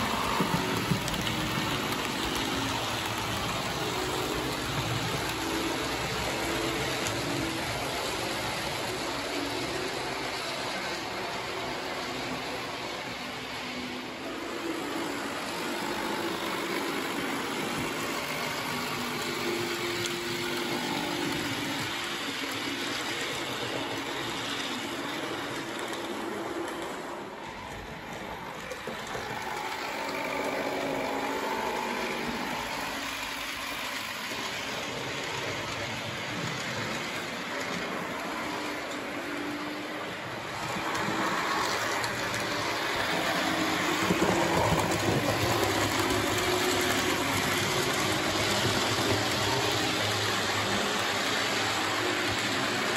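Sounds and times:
model train whirring on rails: 0:00.0 - 0:52.9.

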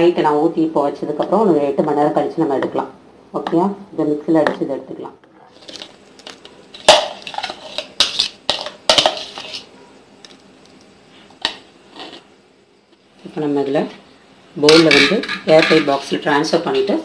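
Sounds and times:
metal spoon scraping plastic bowl: 0:06.8 - 0:09.7, 0:11.9 - 0:12.3.

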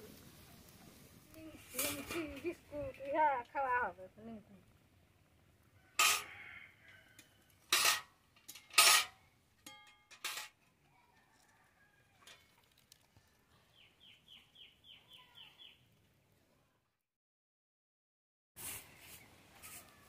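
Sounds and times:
metal pot and spatula clanking: 0:06.0 - 0:06.3, 0:07.2 - 0:10.7
bird chirping: 0:13.4 - 0:15.9.

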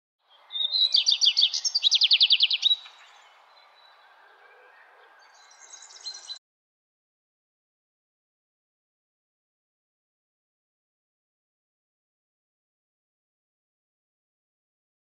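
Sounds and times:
songbird singing: 0:00.2 - 0:06.4.

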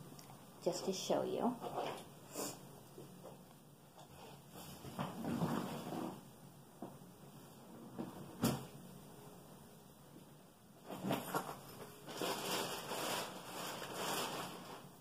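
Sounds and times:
rustling: 0:10.8 - 0:15.0.

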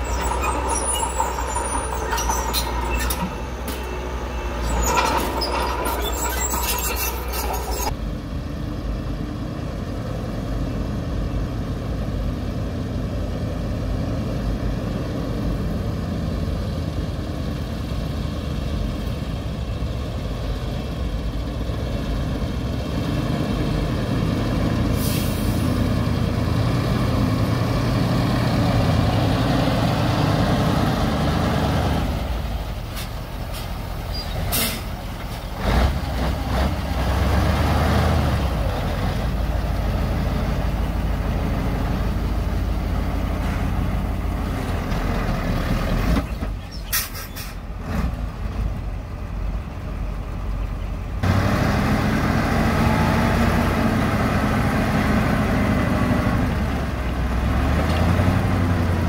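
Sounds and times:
heavy diesel machinery running: 0:00.0 - 0:59.0
short hiss: 0:34.5 - 0:35.0.

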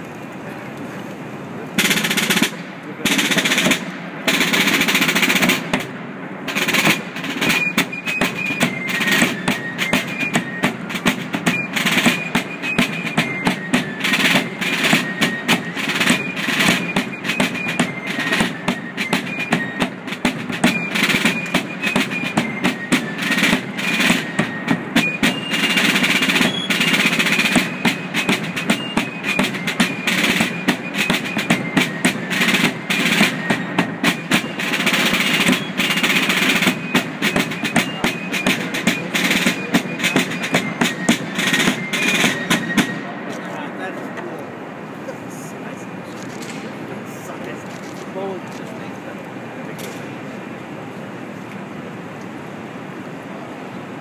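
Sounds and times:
snare drums and rolls: 0:01.8 - 0:43.7
fifes playing melody: 0:06.5 - 0:43.9.

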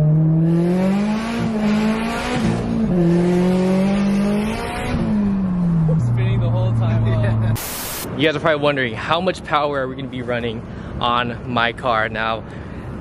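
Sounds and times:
car engine accelerating: 0:00.0 - 0:08.0.

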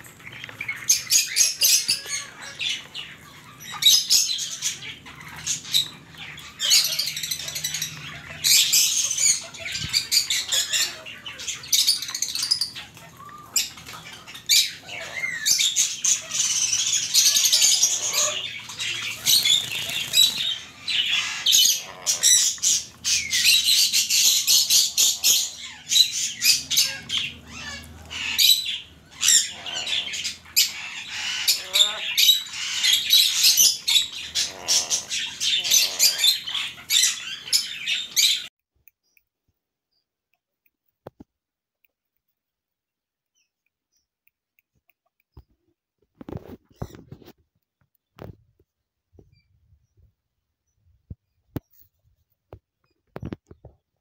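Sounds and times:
parrot screeching: 0:00.9 - 0:38.5.

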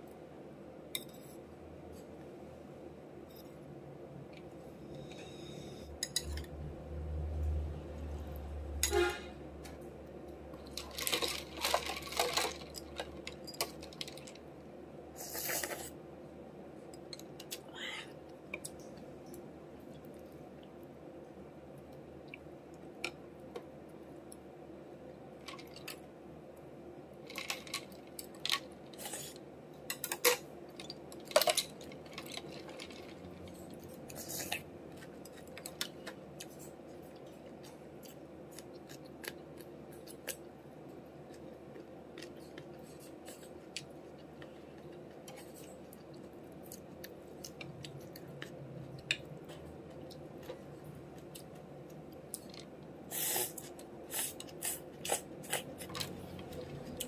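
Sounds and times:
faint steady hum: 0:00.0 - 0:57.0
crunching and chewing: 0:27.2 - 0:40.5, 0:41.2 - 0:57.0.

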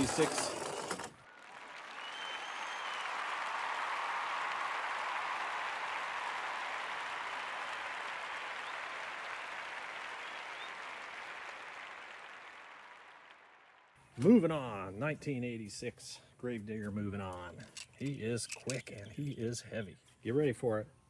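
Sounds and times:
crowd applause and cheering: 0:01.2 - 0:14.0.

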